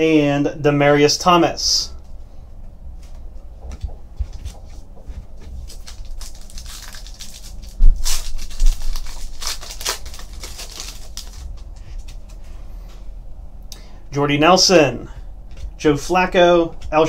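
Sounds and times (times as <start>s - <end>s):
cards being shuffled: 5.4s - 12.6s
foil wrapper crinkling and tearing: 5.5s - 12.4s.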